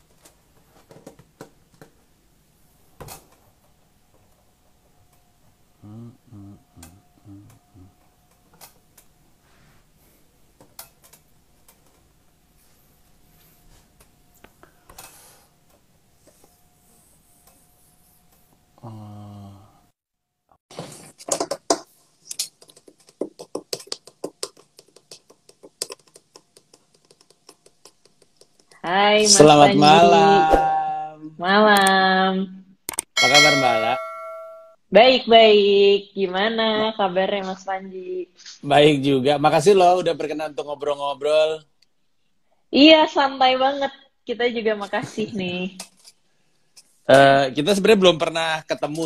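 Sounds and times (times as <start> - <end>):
person murmuring: 5.8 - 8.0, 18.8 - 19.7, 29.4 - 31.2
typing on keyboard: 22.4 - 28.7.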